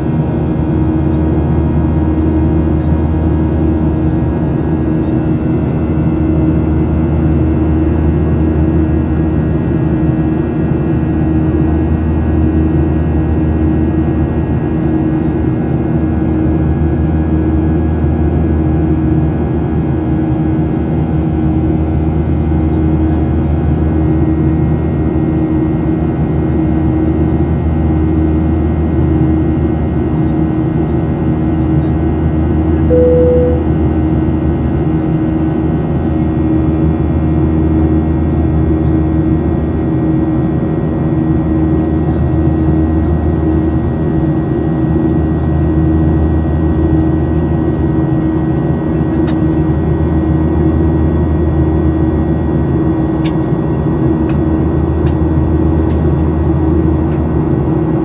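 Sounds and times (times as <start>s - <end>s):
single cabin tone: 32.9s - 33.8s
airliner cabin roar: 32.9s - 34.0s.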